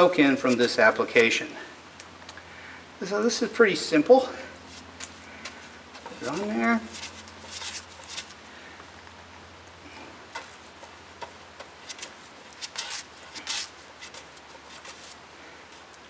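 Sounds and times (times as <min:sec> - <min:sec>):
brush strokes scratching: 0:04.6 - 0:08.4, 0:10.3 - 0:16.0.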